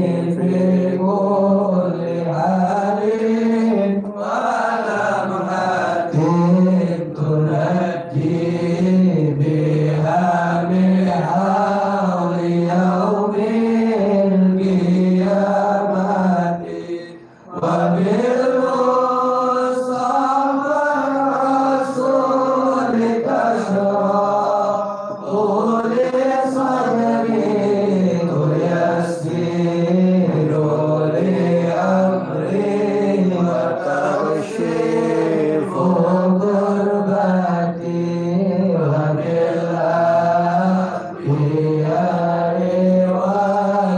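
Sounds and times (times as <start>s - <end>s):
man chanting: 0.0s - 43.9s.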